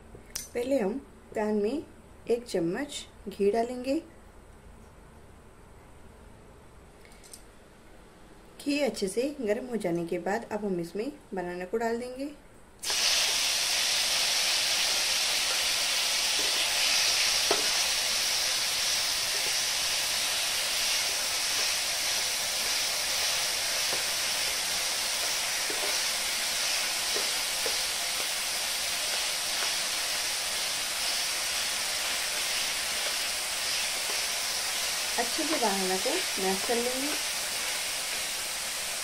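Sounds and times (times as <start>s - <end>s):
frying sizzle: 12.8s - 39.0s.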